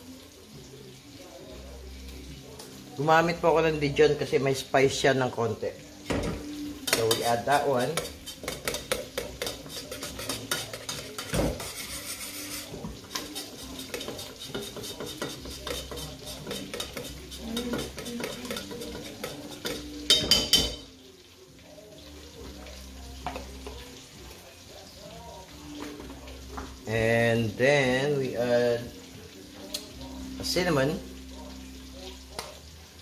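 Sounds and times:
butter sizzling in a frying pan: 0.0s - 33.0s
metal spoon clinking and scraping pan: 6.2s - 20.9s.

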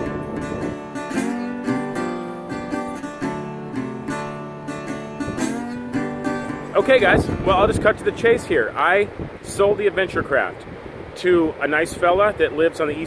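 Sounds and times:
strummed acoustic guitar chords: 0.0s - 9.5s.

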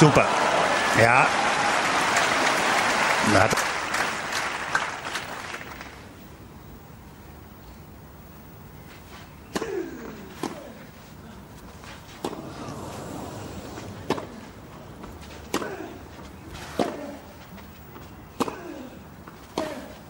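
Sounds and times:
tennis ball hit by racket: 9.5s - 10.8s, 12.2s - 12.7s, 13.8s - 16.0s, 16.6s - 17.2s, 18.4s - 18.8s
faint crowd hush: 9.6s - 17.4s.

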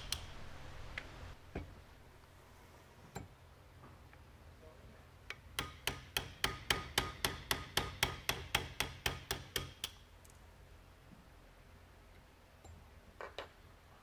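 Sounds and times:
hammer tapping metal punch: 5.6s - 10.0s.

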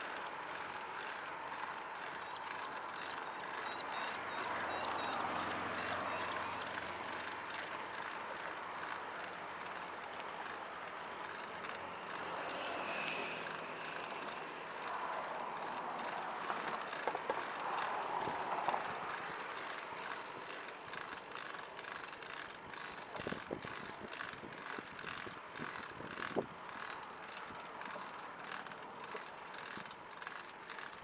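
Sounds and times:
trike wheels rolling on concrete: 0.0s - 31.0s
wheels knocking over joints: 14.1s - 31.0s.

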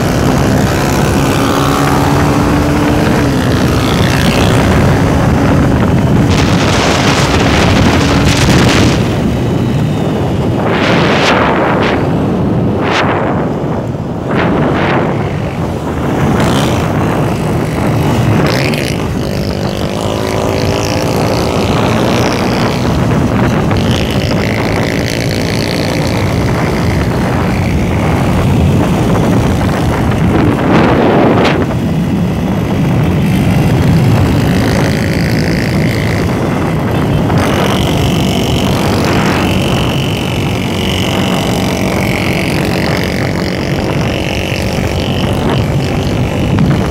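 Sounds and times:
motorcycle engine running: 0.0s - 46.9s
wind rush over microphone: 0.0s - 46.9s.

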